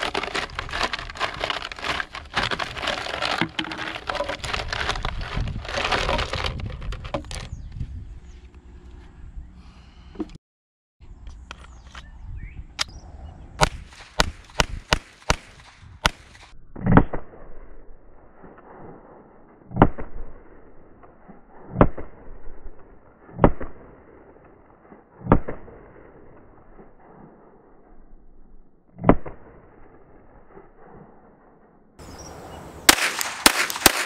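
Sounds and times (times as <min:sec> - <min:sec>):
muffled pistol shots: 0:13.6 - 0:17.4, 0:32.9 - 0:34.0.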